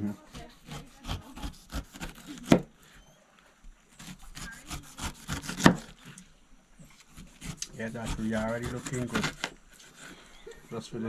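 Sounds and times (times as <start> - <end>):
knife slicing pineapple rind: 0.3 - 2.7, 3.9 - 6.2, 6.8 - 10.3.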